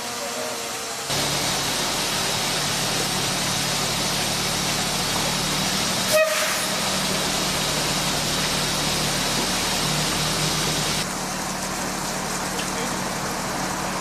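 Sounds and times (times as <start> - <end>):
diesel engine idling: 1.1 - 14.0
short horn toot: 6.1 - 6.8.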